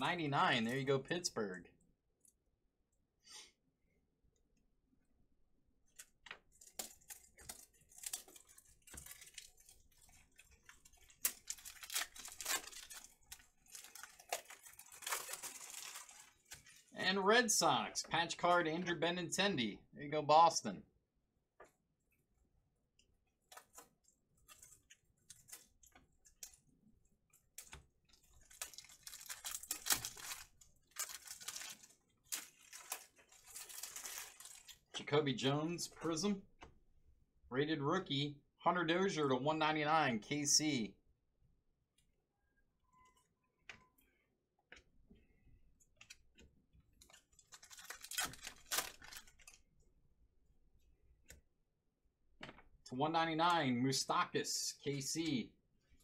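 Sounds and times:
foil wrapper crinkling: 0:06.0 - 0:17.0, 0:27.5 - 0:34.9, 0:47.0 - 0:49.6.

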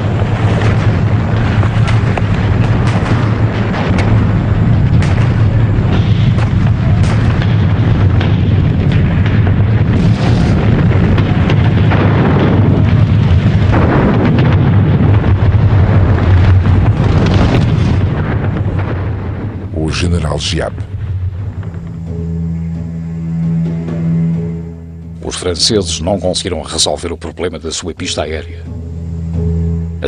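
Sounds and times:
shell explosions and artillery fire: 0:00.0 - 0:28.6
deep rumble: 0:00.0 - 0:30.0.

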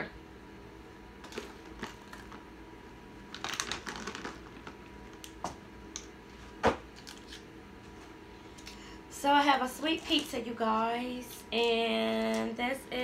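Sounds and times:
packaging crinkling: 0:01.2 - 0:02.5, 0:03.3 - 0:05.4, 0:07.0 - 0:07.4.

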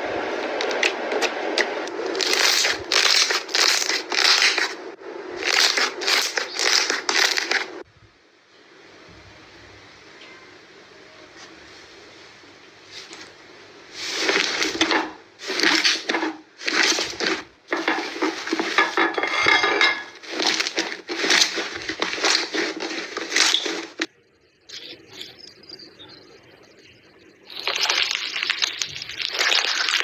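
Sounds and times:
slime crackling and popping: 0:00.6 - 0:04.8, 0:05.4 - 0:07.7, 0:20.2 - 0:24.1, 0:27.5 - 0:30.0.

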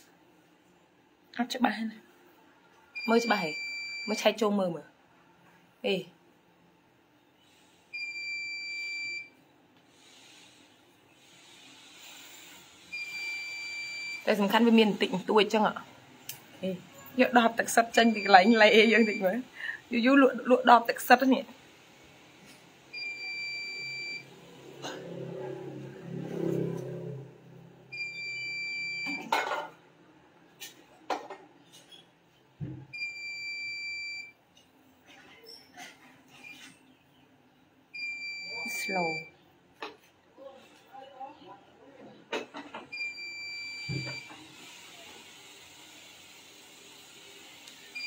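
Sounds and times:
long electronic beeps: 0:13.0 - 0:14.3, 0:38.0 - 0:39.3.

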